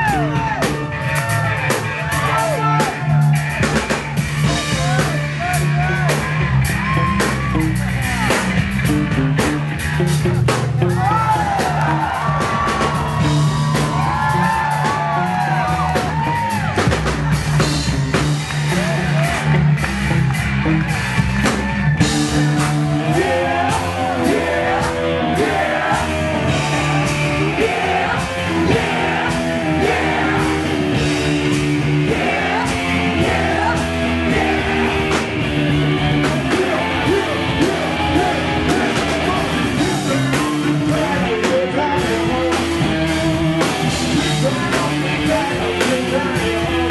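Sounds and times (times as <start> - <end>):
bass line: 0.0 - 46.9
drums: 0.0 - 46.9
funk band playing: 0.0 - 46.9
vocals: 4.4 - 6.2, 22.9 - 46.9.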